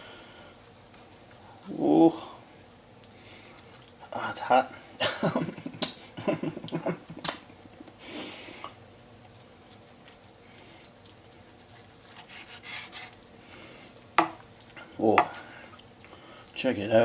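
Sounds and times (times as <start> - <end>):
soft cutting sounds: 0.4 - 1.9, 9.1 - 13.4
blade scraping cutting board: 12.1 - 13.1.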